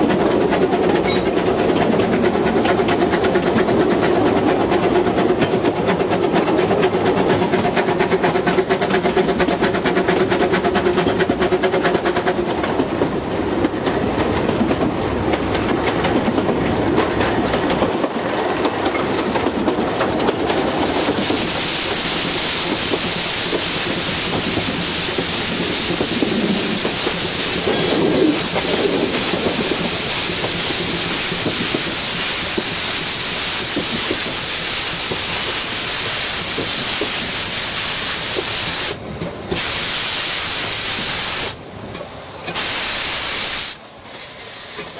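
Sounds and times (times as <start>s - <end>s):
steam hissing: 13.2s - 44.9s.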